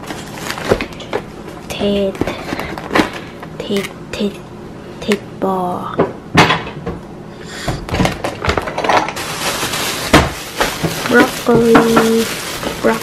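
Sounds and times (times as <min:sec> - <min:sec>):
plastic bag crinkling: 0:00.0 - 0:01.1, 0:08.1 - 0:13.0
packaging knocks and taps: 0:10.1 - 0:12.8.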